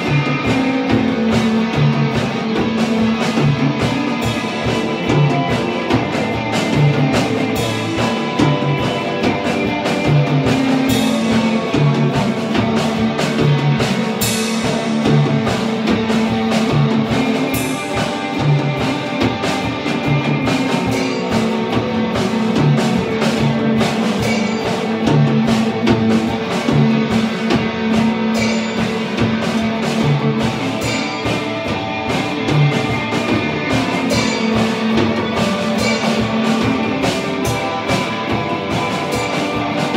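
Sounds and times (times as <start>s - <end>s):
cymbal hits: 0.0s - 39.9s
drum kit beat: 0.0s - 39.9s
electric guitars: 0.0s - 39.9s.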